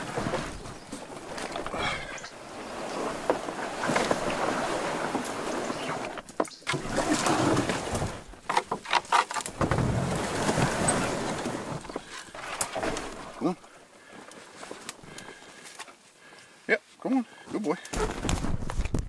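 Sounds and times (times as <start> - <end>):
paddle splashing in water: 0.0 - 13.7.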